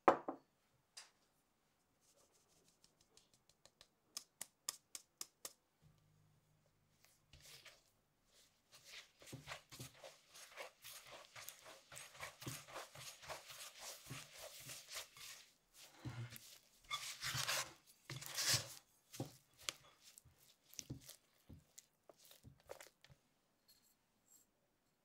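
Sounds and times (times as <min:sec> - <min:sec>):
spatula scraping batter in bowl: 0:08.7 - 0:23.0.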